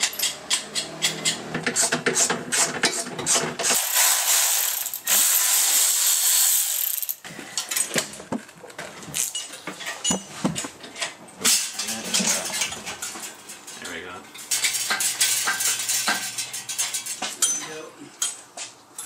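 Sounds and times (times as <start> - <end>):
tools and metal parts clinking: 0.0 - 1.8, 9.1 - 19.0
ratchet wrench clicking: 3.7 - 7.2.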